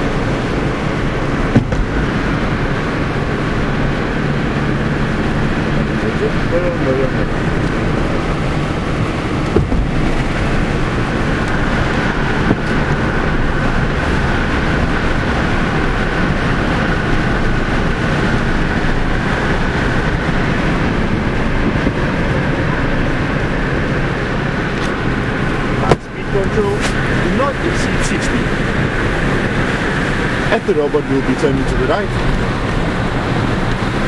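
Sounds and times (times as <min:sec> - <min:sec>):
car cabin road and wind noise: 0:00.0 - 0:34.0.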